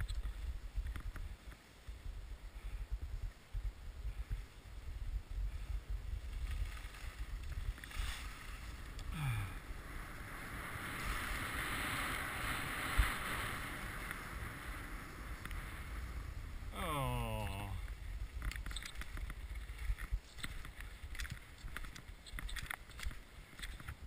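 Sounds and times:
wind buffeting microphone: 0:00.0 - 0:16.8
skis sliding on snow: 0:04.1 - 0:09.0, 0:09.6 - 0:16.7, 0:17.9 - 0:24.0.

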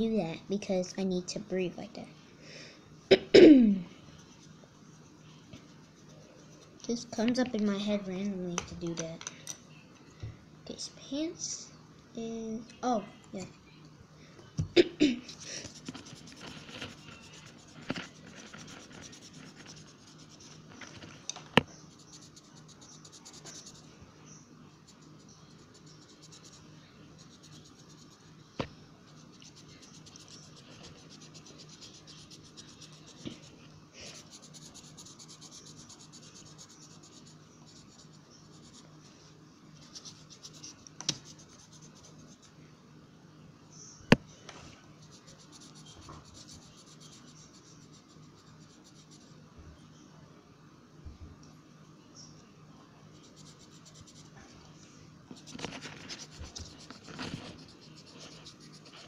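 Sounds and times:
pen scratching on paper: 0:15.3 - 0:20.7, 0:29.1 - 0:33.5, 0:34.1 - 0:38.8, 0:39.8 - 0:42.5, 0:55.4 - 0:59.0.

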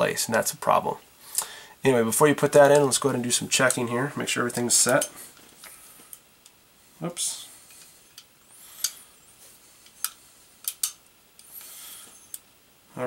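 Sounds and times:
small metal gun parts clicking: 0:09.8 - 0:11.0.

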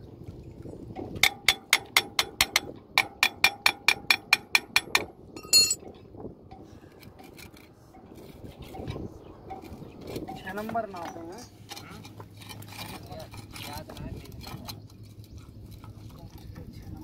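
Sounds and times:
spanner tapping steel barrel: 0:01.2 - 0:05.8
metal knock: 0:05.4 - 0:05.8.

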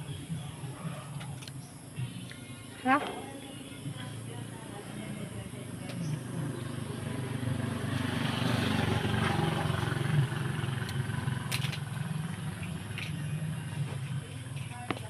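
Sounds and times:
low engine hum: 0:03.3 - 0:15.0.

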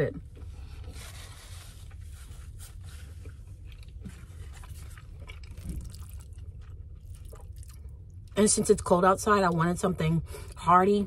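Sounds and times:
steady low hum: 0:00.0 - 0:11.0
person chewing food: 0:01.8 - 0:08.4.

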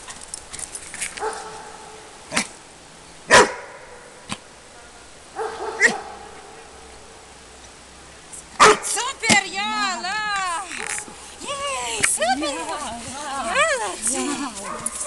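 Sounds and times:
dog barking: 0:03.3 - 0:03.8, 0:04.8 - 0:06.5, 0:08.6 - 0:08.9, 0:14.6 - 0:15.0.

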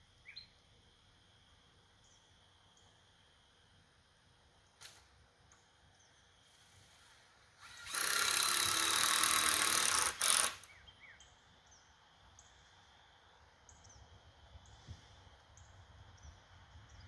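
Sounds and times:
handheld power tool running: 0:07.6 - 0:10.7.

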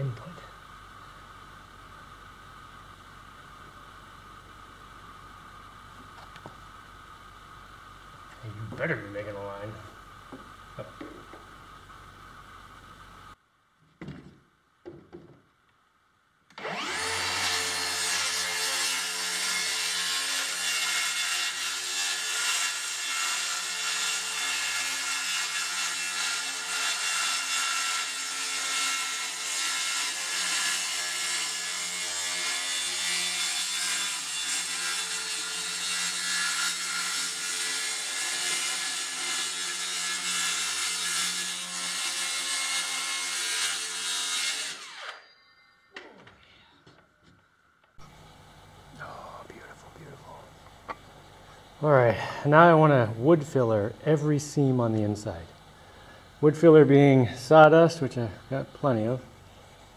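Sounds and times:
power tool cutting wood: 0:16.5 - 0:45.5.

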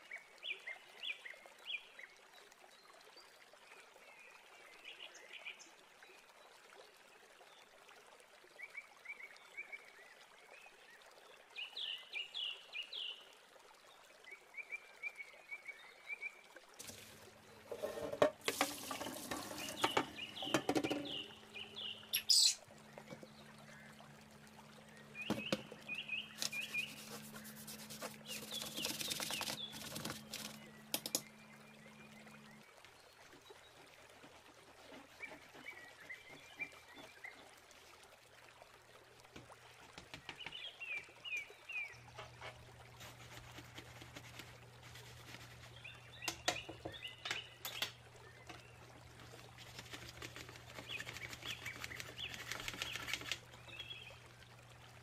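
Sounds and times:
water splashing and pouring: 0:16.7 - 0:31.4, 0:33.0 - 0:55.0
low steady hum: 0:16.8 - 0:33.1
small birds chirping: 0:18.6 - 0:23.9, 0:24.9 - 0:32.3, 0:43.0 - 0:54.2.

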